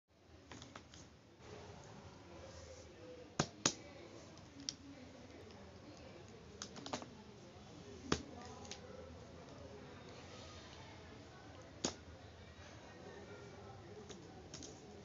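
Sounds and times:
markers clicking down on paper: 3.4s - 3.8s, 5.4s - 7.1s, 11.5s - 12.0s.

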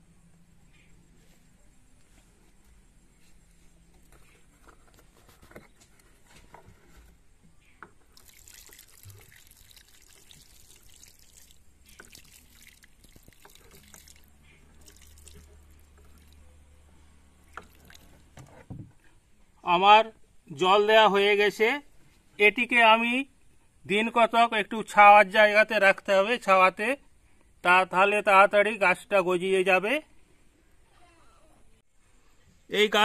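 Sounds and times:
water trickling onto soil: 8.0s - 16.5s, 17.4s - 18.4s.

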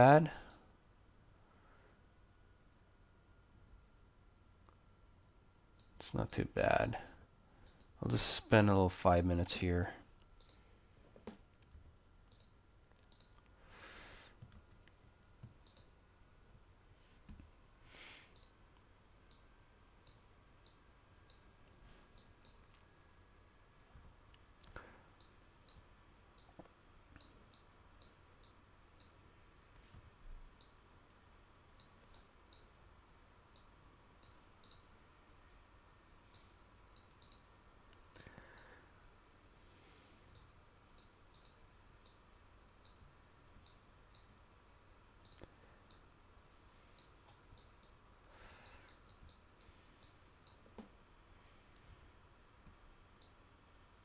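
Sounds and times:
faint computer mouse clicks: 10.4s - 10.6s, 12.3s - 13.5s, 14.4s - 15.9s, 18.3s - 18.6s, 22.1s - 22.8s, 24.3s - 29.2s, 29.9s - 30.8s, 31.8s - 32.7s, 33.5s - 34.9s, 36.3s - 38.8s, 40.3s - 42.2s, 42.8s - 44.4s, 45.2s - 46.0s, 46.9s - 50.9s, 52.6s - 53.4s.

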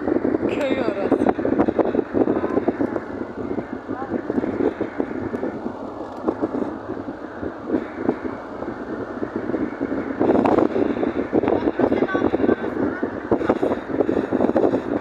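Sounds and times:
car driving: 0.0s - 15.0s
indistinct voices talking: 0.0s - 15.0s.

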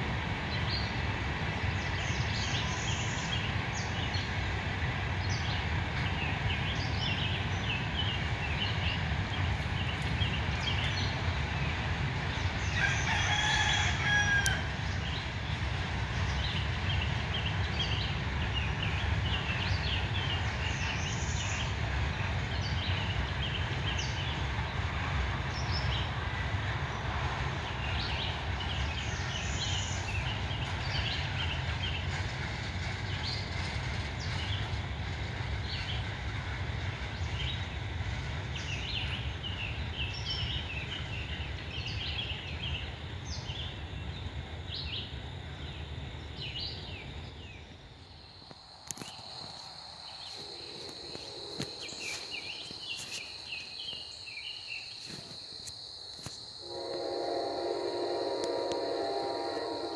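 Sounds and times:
freight train rolling past: 0.0s - 59.9s
rooster crowing: 12.7s - 14.8s.

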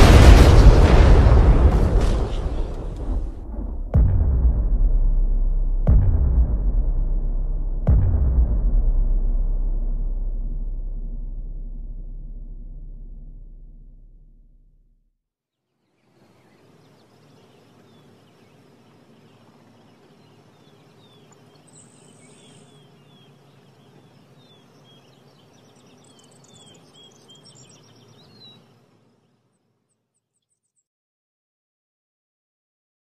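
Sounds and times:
birds chirping: 15.8s - 30.8s.

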